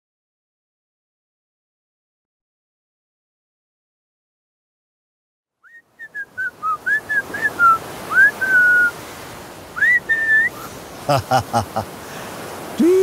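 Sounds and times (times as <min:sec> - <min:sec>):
person whistling a tune: 0:05.7 - 0:08.9, 0:09.8 - 0:10.6
surf washing: 0:05.8 - 0:13.0.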